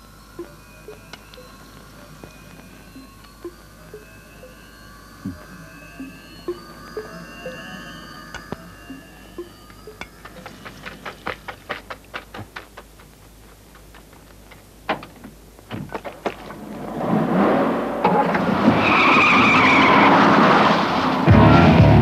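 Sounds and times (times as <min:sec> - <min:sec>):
tyres skidding with a squeal: 0:16.9 - 0:21.8.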